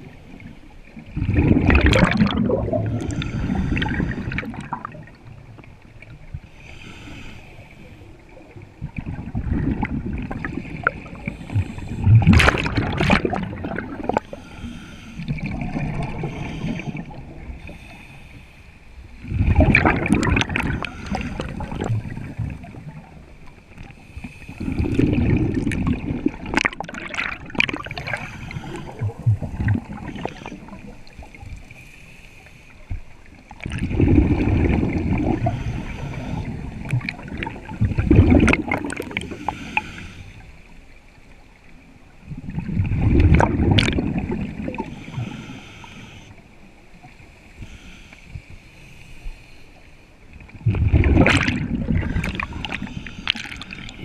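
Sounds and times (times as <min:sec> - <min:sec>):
gurgling exhaled bubbles: 0:01.0 - 0:06.1, 0:08.8 - 0:14.4, 0:15.3 - 0:17.6, 0:19.2 - 0:23.2, 0:24.5 - 0:31.4, 0:33.6 - 0:39.8, 0:42.3 - 0:45.4, 0:50.5 - 0:54.0
scuba regulator breathing underwater: 0:01.4 - 0:05.0, 0:06.5 - 0:08.3, 0:10.4 - 0:22.5, 0:23.9 - 0:26.3, 0:27.0 - 0:32.9, 0:33.9 - 0:40.7, 0:44.2 - 0:46.6, 0:47.4 - 0:50.0, 0:51.1 - 0:54.0.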